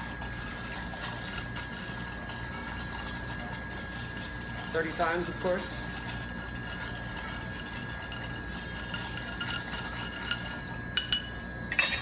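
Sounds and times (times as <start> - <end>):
ice clinking against glass: 7.7 - 12.0.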